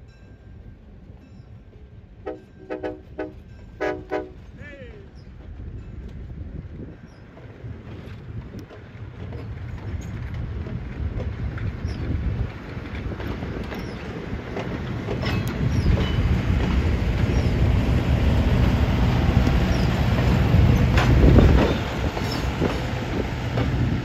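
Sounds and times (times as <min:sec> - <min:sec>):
train wheel rumble: 0:00.0 - 0:24.0
wheels clicking over rails: 0:07.2 - 0:24.0.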